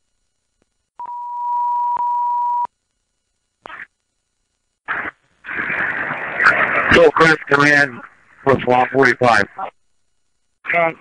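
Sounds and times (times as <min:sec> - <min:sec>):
radio static bursts: 0:03.5 - 0:11.0.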